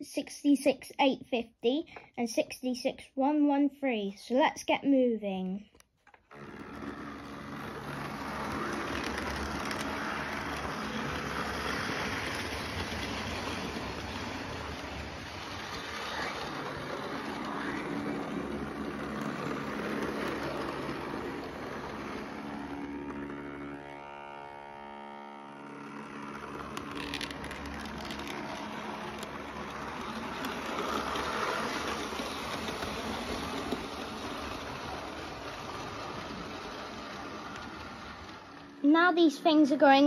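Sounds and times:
model train running on track: 6.3 - 40.0.

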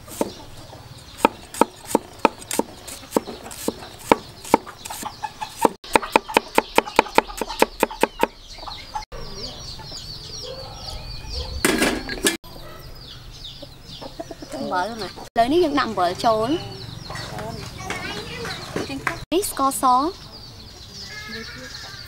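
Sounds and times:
chickens chirping: 0.0 - 22.0
cleaver chopping on wooden block: 1.2 - 5.0, 5.6 - 8.4.

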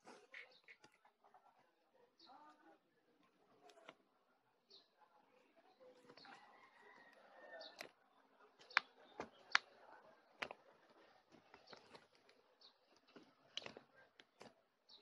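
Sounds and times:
slime squishing: 5.9 - 15.0.

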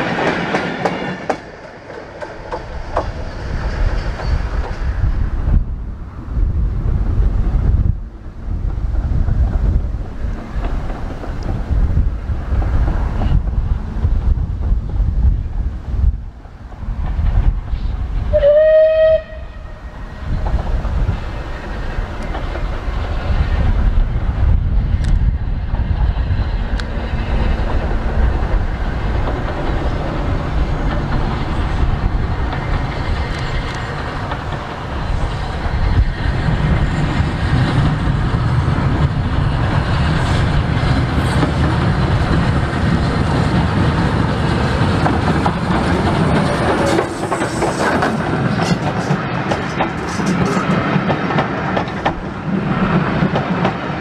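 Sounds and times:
train wheels rumbling on rails: 0.0 - 54.0
wind on microphone: 2.2 - 54.0
steam locomotive whistle: 18.3 - 20.2.

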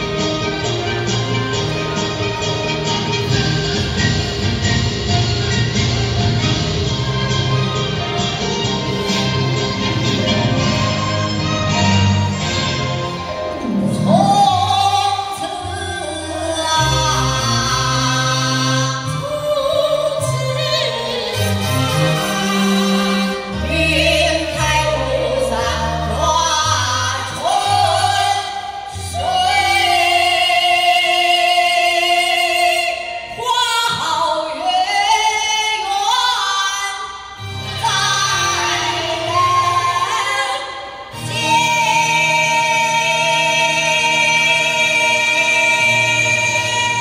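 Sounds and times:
amplified musical accompaniment: 0.0 - 47.0
women singing through microphones: 13.8 - 37.1, 37.7 - 47.0.

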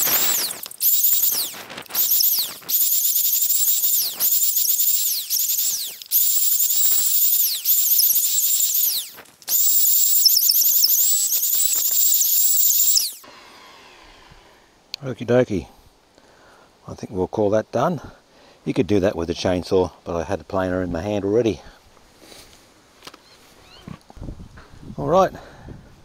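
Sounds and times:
electric planer whining: 13.2 - 14.7.

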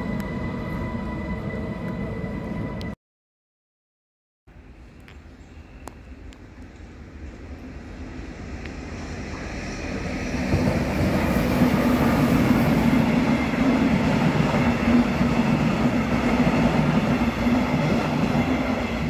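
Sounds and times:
train wheels rumbling on rails: 6.7 - 19.0.

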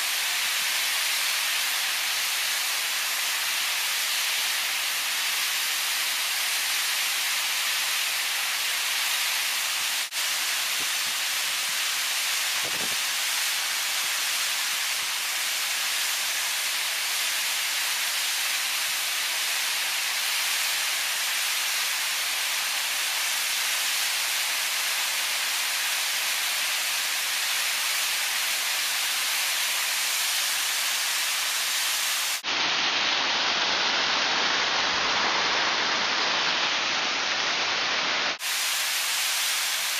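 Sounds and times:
waterfall rushing: 8.5 - 20.2, 29.1 - 39.9.

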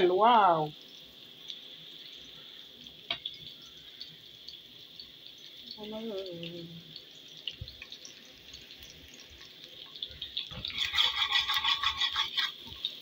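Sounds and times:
onions sizzling in oil: 0.0 - 13.0
metal spoon scraping pot: 10.5 - 12.9.

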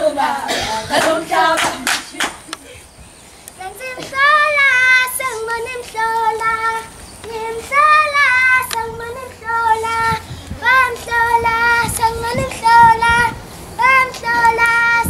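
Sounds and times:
children's choir singing: 0.0 - 2.5, 3.6 - 15.0.

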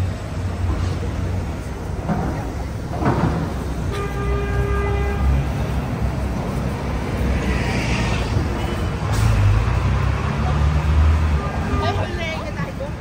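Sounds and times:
traffic engine rumble: 0.0 - 13.0.

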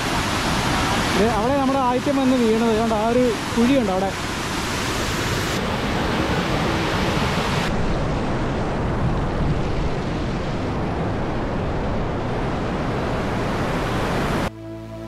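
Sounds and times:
waterfall rushing: 0.0 - 7.8.

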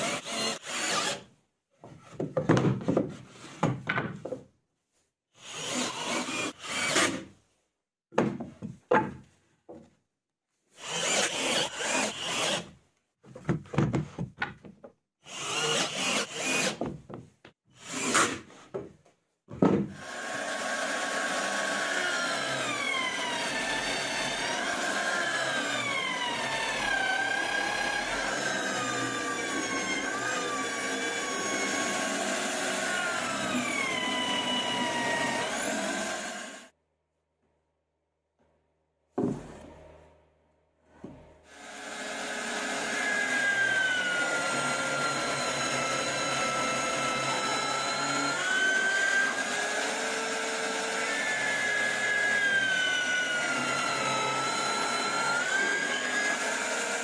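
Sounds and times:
cordless drill driving screws: 0.0 - 1.3, 10.8 - 12.7, 15.3 - 16.8, 20.0 - 36.7, 41.5 - 57.0
drill press boring wood: 20.0 - 36.7, 41.5 - 57.0.

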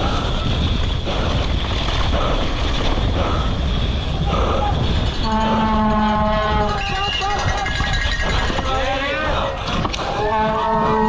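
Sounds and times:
bike tyres rumbling over dirt: 0.0 - 11.0
wind rushing over microphone: 0.0 - 11.0
long horn blast: 5.2 - 6.8, 10.2 - 11.0.

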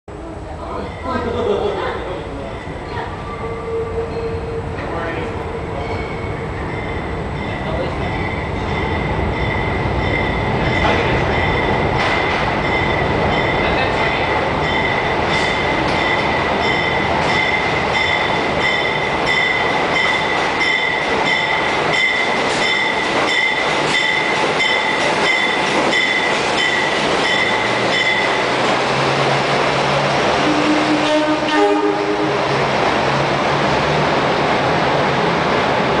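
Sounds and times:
train wheels rumbling on rails: 0.1 - 36.0
rail joint clacks: 2.2 - 34.0.

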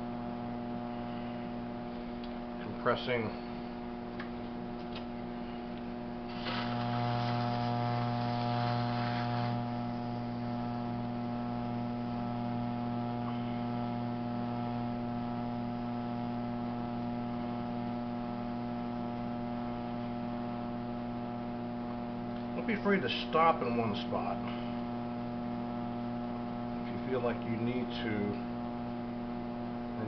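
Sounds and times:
potter's wheel humming: 0.0 - 30.0
rib hissing against wet clay: 6.3 - 7.7.

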